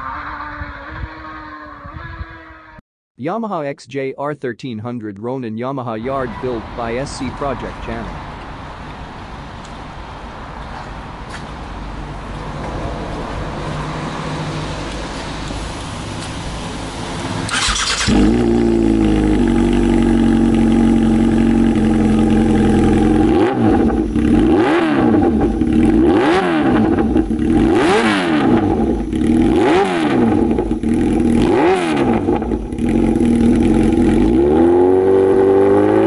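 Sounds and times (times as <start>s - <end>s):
motorcycle engine starting and idling: 14.8s - 36.0s
motorcycle engine revving: 15.7s - 36.0s.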